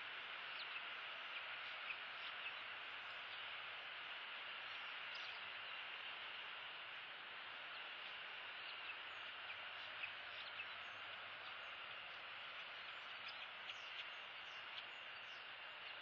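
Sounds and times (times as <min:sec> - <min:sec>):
steady outdoor hiss: 0:00.0 - 0:16.0.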